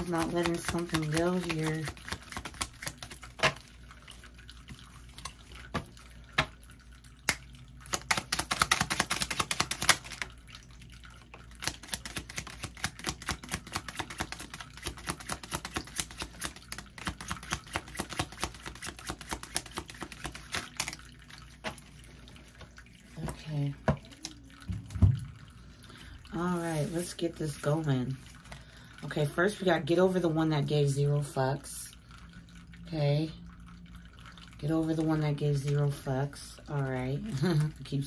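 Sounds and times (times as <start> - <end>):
cards being shuffled: 0.0 - 3.6, 7.9 - 10.3, 11.6 - 21.0.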